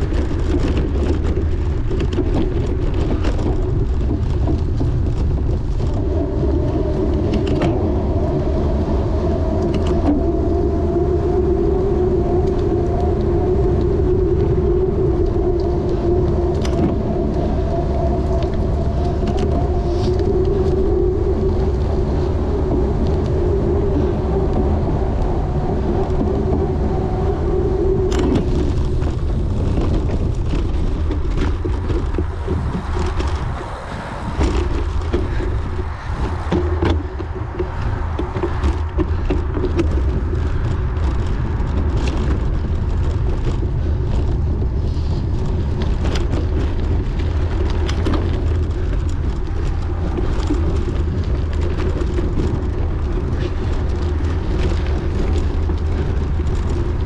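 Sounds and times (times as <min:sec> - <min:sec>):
bicycle rattling and knocking: 0:00.0 - 0:08.3, 0:27.6 - 0:57.0
wind buffeting microphone: 0:00.0 - 0:57.0.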